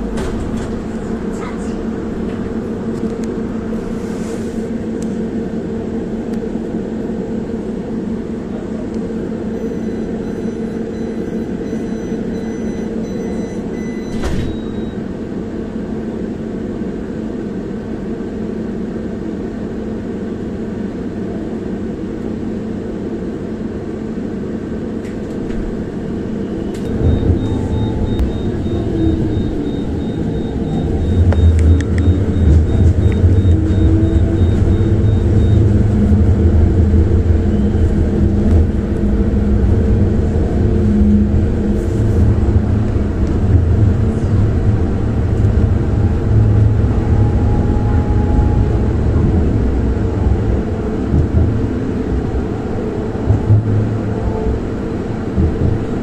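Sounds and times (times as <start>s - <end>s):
vehicle equipment humming: 0.0s - 56.0s
vehicle low rumble: 0.0s - 56.0s
high motor whine: 4.6s - 56.0s
faint high beeps: 9.5s - 15.0s, 26.4s - 35.7s.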